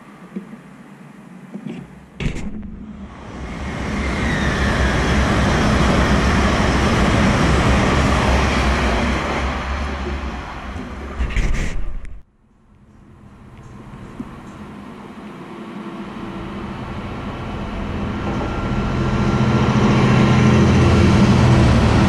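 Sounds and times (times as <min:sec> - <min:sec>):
sharp knock: 0:02.2 - 0:02.9
train passing roar: 0:02.9 - 0:11.2, 0:13.0 - 0:22.0.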